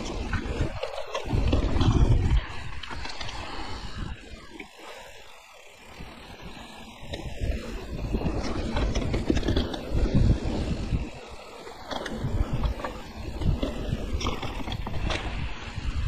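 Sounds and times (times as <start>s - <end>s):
wind buffeting microphone: 0.0s - 5.1s, 5.8s - 16.0s
bike clicks and rattles: 0.0s - 16.0s
tyres rumbling on dirt: 5.7s - 16.0s.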